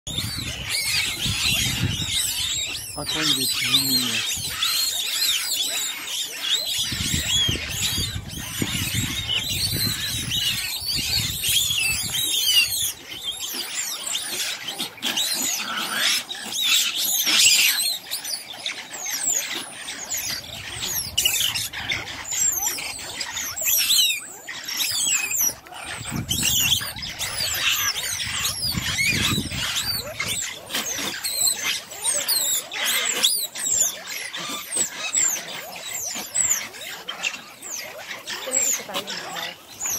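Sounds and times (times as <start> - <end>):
mongooses chittering and squealing: 0.1 - 39.9.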